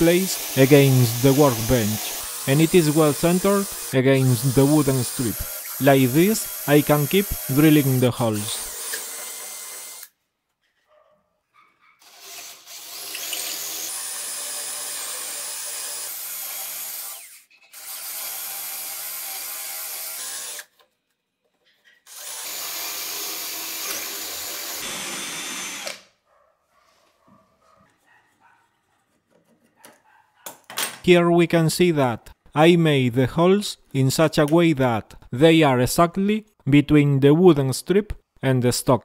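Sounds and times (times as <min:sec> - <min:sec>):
cordless drill boring wood: 0:00.0 - 0:10.1, 0:12.0 - 0:20.8, 0:22.1 - 0:26.1.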